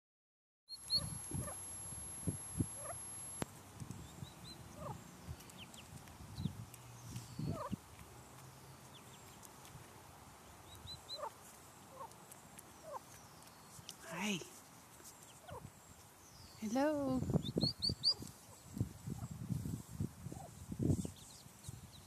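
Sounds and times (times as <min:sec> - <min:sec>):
turkey peeps and clucks: 0:00.8 - 0:03.4, 0:04.0 - 0:08.1, 0:10.6 - 0:14.0, 0:15.0 - 0:15.7.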